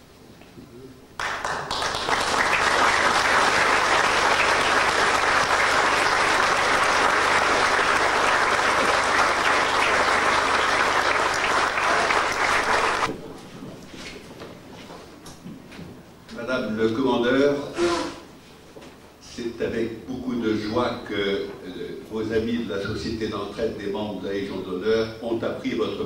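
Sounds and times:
audience applauding: 1.2s - 13.1s.

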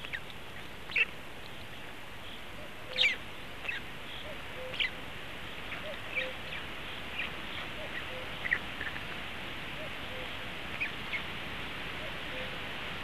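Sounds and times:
small birds chirping: 0.0s - 12.7s
steady background hiss: 0.0s - 13.0s.

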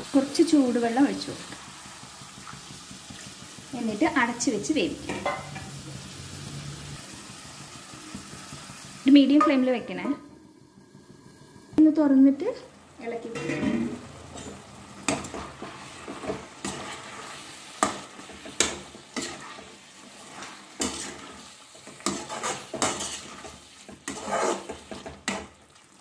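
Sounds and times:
curry sizzling: 0.0s - 26.0s
metal spoon scraping a pan: 13.3s - 25.7s.

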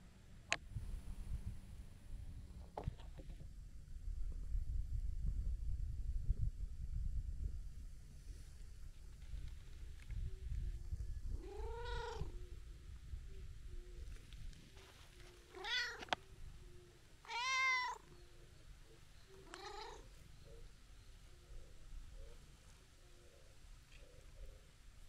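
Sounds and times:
cat meowing: 11.4s - 12.4s, 15.5s - 16.2s, 17.2s - 18.1s, 19.4s - 20.1s.

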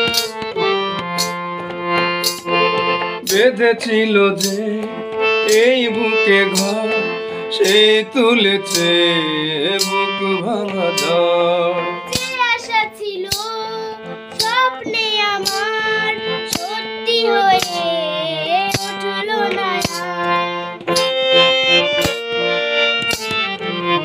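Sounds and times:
backing track chords and percussion: 0.0s - 24.0s
girl singing: 12.1s - 20.8s.

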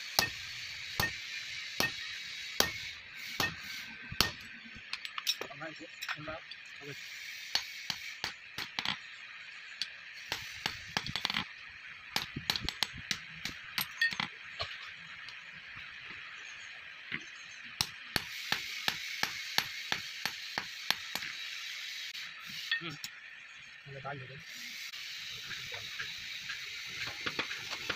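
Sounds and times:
steady hiss: 0.0s - 8.7s, 9.6s - 13.8s, 17.8s - 27.9s
hammer striking steel on anvil: 0.1s - 6.2s, 17.8s - 21.4s.

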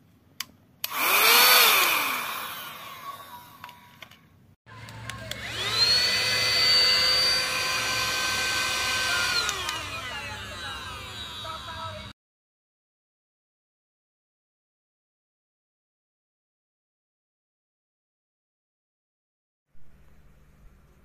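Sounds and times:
handheld vacuum motor whine: 0.8s - 4.1s, 4.7s - 12.1s.

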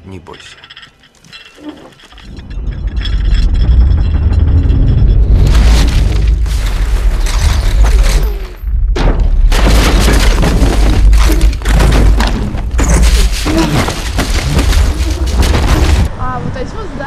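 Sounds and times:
debris crashing: 0.4s - 16.2s
deep rumble: 2.2s - 16.8s
heavy explosion booms: 8.8s - 16.2s.

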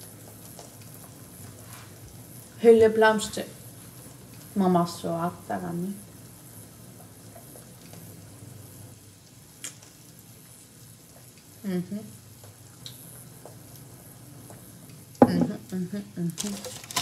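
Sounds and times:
faint hiss: 0.0s - 17.0s
woman murmuring: 11.7s - 12.1s, 15.2s - 16.4s.

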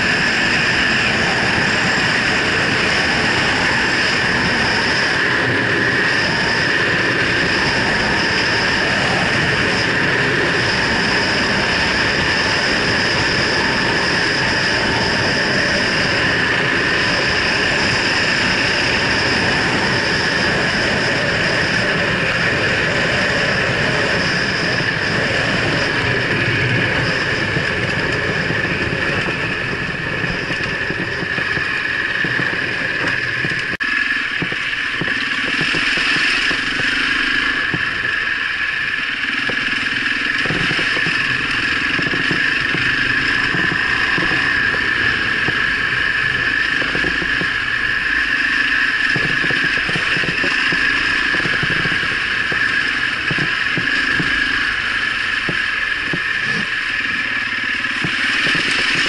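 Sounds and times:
dirt bike engine running: 25.2s - 59.0s.

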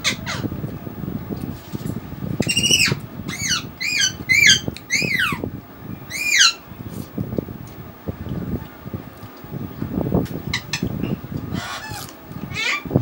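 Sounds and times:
bird giving harsh calls: 11.6s - 12.9s.

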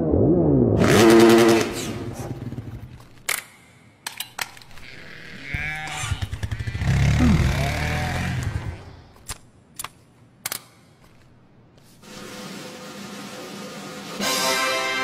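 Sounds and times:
wavering bleat-like animal call: 4.8s - 8.7s.

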